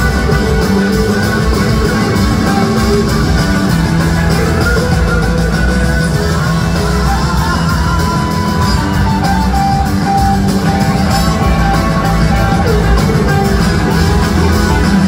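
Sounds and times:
blues-rock band playing: 0:00.0 - 0:15.0
electric guitar lead: 0:00.0 - 0:15.0.

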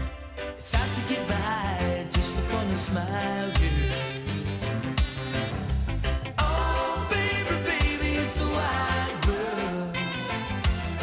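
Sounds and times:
steady bass line: 0:00.0 - 0:11.0
song with sung vocal: 0:00.6 - 0:05.0, 0:06.4 - 0:10.6.

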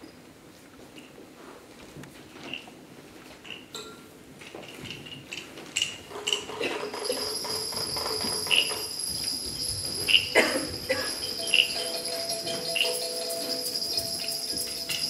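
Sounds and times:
metallic clinks and pings: 0:06.3 - 0:15.0
bell-like jingling: 0:06.9 - 0:15.0.

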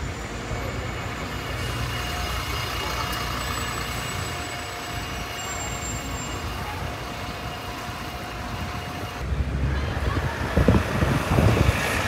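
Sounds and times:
bus engine rumbling: 0:00.0 - 0:12.0
street traffic: 0:00.0 - 0:12.0.

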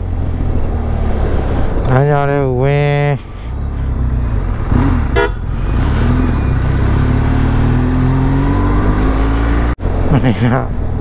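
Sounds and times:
motorcycle engine accelerating: 0:03.5 - 0:10.3.

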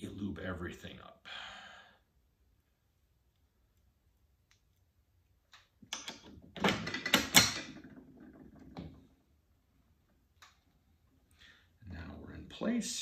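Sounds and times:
metal parts clicking and clattering: 0:06.0 - 0:08.9.

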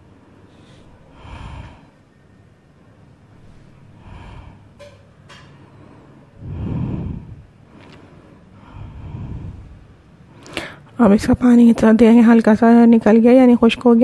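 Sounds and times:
low rush: 0:00.0 - 0:02.2, 0:02.8 - 0:04.8, 0:05.6 - 0:11.4.

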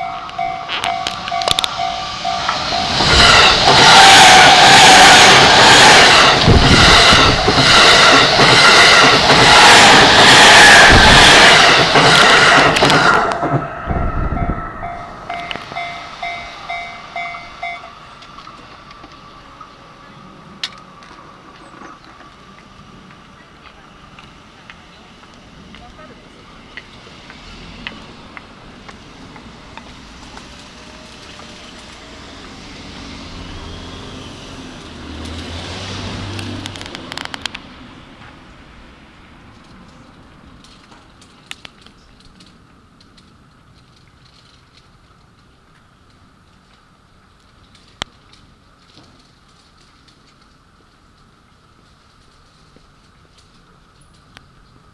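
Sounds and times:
low thumps of train bogies: 0:00.0 - 0:19.2
train wheels rushing on rails: 0:00.0 - 0:54.9
vehicle rumble approaching: 0:00.0 - 0:54.9.

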